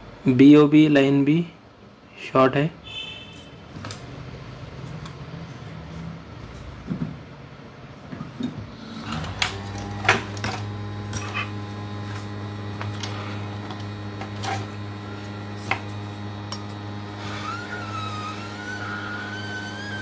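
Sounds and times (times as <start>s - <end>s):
hot-air blower humming: 8.0s - 20.0s.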